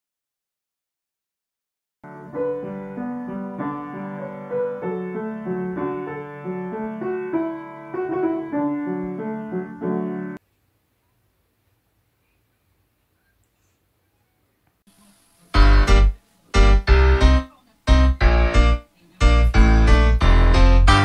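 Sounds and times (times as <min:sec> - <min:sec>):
upright piano playing: 0:02.0 - 0:10.4, 0:15.6 - 0:21.0.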